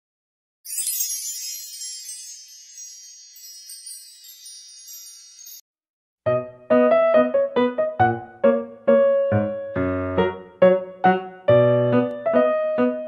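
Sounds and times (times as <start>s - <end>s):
shimmering wind chime sparkle: 0.7s - 5.7s.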